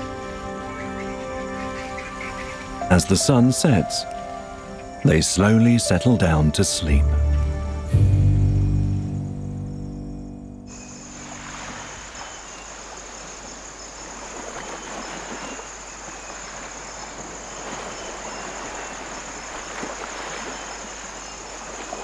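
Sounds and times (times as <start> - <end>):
high-pitched insect trill: 9.6 - 22.0
constant rushing hiss: 10.7 - 22.0.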